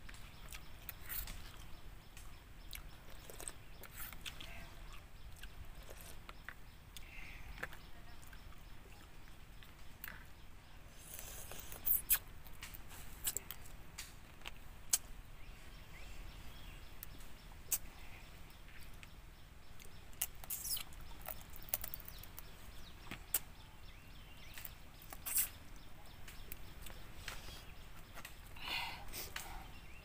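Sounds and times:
faint outdoor background: 0.0 - 30.0
wet chewing and finger-sucking: 2.6 - 10.3, 11.0 - 15.1, 17.0 - 17.9, 19.8 - 23.5, 24.4 - 25.6.

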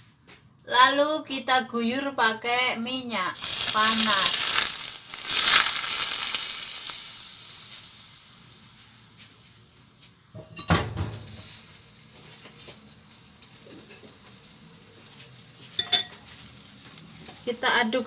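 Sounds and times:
hot oil sizzling: 3.4 - 18.0
cookware clattering: 10.4 - 11.0, 15.8 - 16.3.

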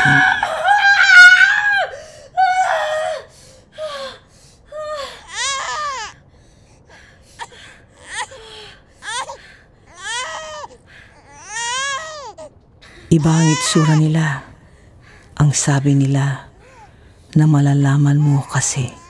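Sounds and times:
newborn baby crying: 0.0 - 1.9, 5.0 - 6.2, 7.4 - 14.5, 18.0 - 19.0
woman screaming: 0.0 - 3.2, 13.2 - 14.1.

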